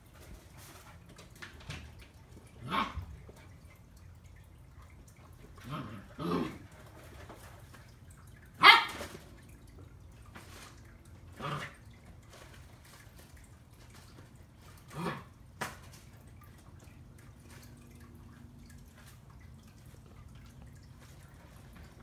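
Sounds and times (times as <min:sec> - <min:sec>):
dog play barks: 0:02.5 - 0:03.2, 0:08.5 - 0:09.1.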